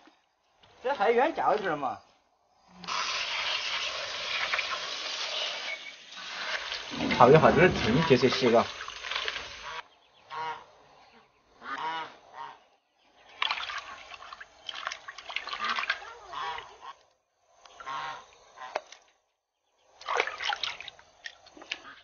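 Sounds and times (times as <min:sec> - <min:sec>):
water sloshing in metal basin: 0:06.9 - 0:09.5, 0:13.3 - 0:16.6, 0:20.0 - 0:21.8
fowl calling: 0:09.6 - 0:10.7, 0:11.6 - 0:12.6, 0:15.6 - 0:17.0, 0:17.8 - 0:18.8.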